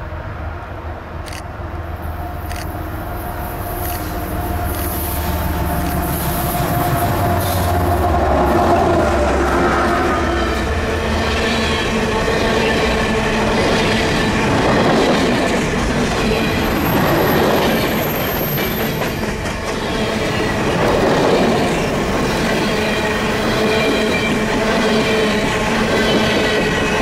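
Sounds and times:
train wheels rumbling and clattering: 1.2 - 27.0
train wheels squealing: 16.3 - 21.6.

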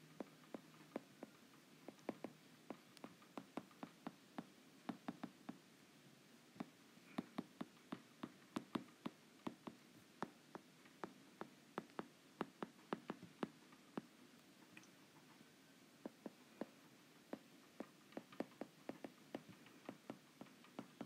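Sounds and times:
stylus tapping on tablet screen: 0.2 - 5.6, 6.6 - 14.1, 16.0 - 21.0.

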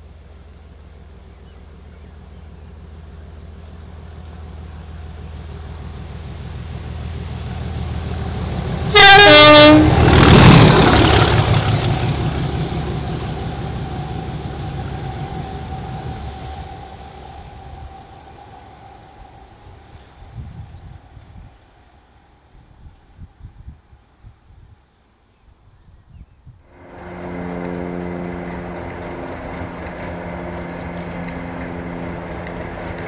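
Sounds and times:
diesel locomotive engine growling: 0.0 - 23.2, 26.7 - 33.0
two-tone train horn: 8.9 - 10.2, 26.7 - 33.0.

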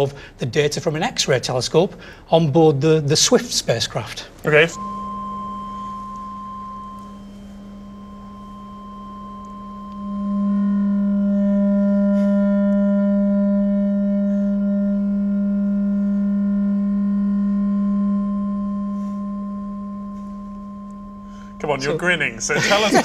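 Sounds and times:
high electronic tone: 4.5 - 11.4, 18.2 - 23.0
low electronic tone with overtones: 4.5 - 23.0.

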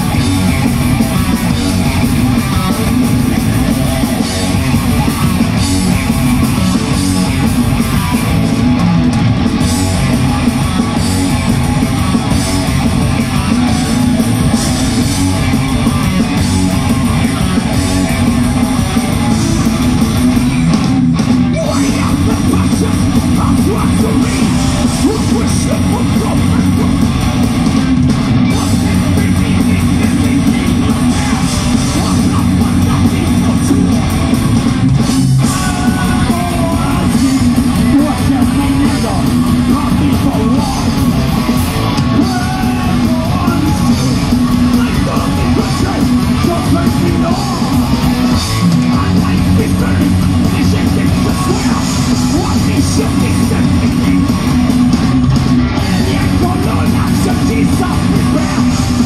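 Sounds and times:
heavy metal band playing: 0.0 - 59.0
singer yelling vocals: 21.4 - 27.4, 28.4 - 34.3, 35.3 - 59.0.

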